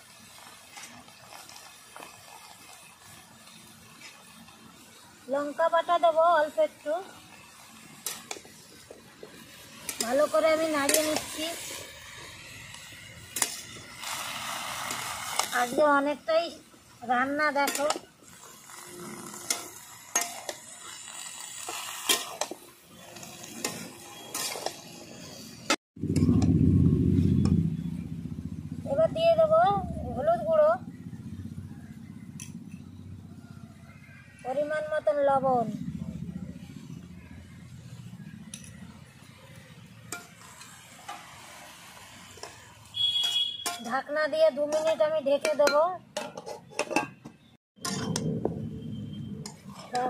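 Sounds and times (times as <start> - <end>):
metal spatula scraping a pan: 7.3 - 16.1, 17.5 - 26.4, 40.1 - 48.3, 48.9 - 50.0
loud low rumble: 26.0 - 30.2.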